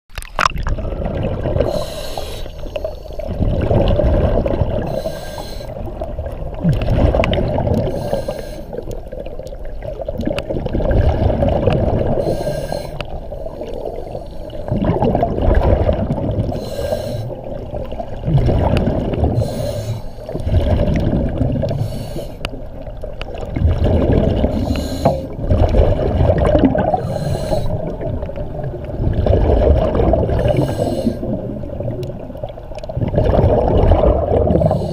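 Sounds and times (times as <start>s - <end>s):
exhale bubbling rumble: 0.4s - 34.9s
regulator inhale hiss: 1.6s - 3.3s, 4.8s - 5.9s, 7.8s - 9.0s, 12.2s - 14.7s, 16.5s - 17.6s, 19.4s - 20.4s, 21.7s - 22.6s, 24.5s - 25.4s, 26.9s - 28.1s, 30.4s - 31.4s, 34.6s - 34.9s.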